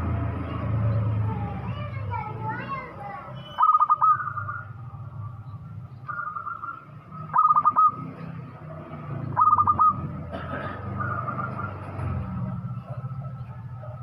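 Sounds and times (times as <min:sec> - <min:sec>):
dove cooing: 0:03.6 - 0:04.7, 0:06.1 - 0:08.1, 0:09.3 - 0:11.8.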